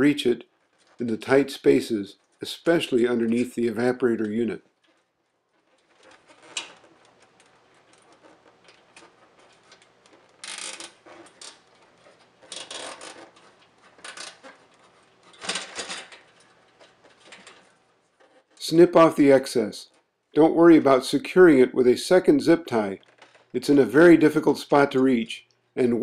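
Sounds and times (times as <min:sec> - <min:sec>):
zip tie ratcheting: 0:05.7 - 0:14.6.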